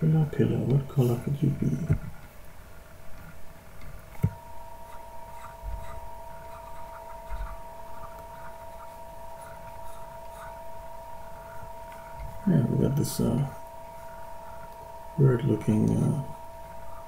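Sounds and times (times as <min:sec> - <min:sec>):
electrical hum: 0:00.0 - 0:17.0
higher hum tone: 0:04.0 - 0:17.0.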